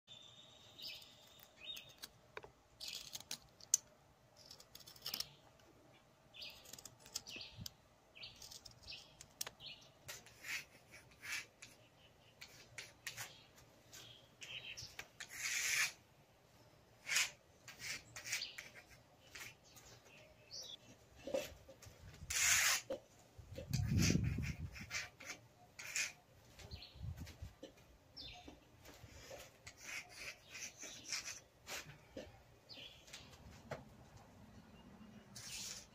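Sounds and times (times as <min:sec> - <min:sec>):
pencil drawing on concrete: 0:10.0 - 0:13.4, 0:15.2 - 0:16.0, 0:17.0 - 0:19.7, 0:22.2 - 0:23.0, 0:23.6 - 0:26.3, 0:29.1 - 0:32.3, 0:35.3 - 0:35.9
birds chirping: 0:23.7 - 0:35.9.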